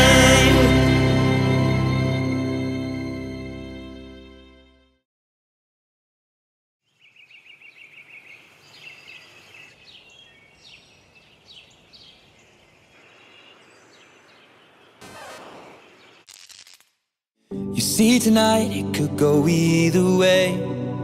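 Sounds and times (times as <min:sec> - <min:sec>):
birds chirping and trilling: 0:06.8 - 0:16.3.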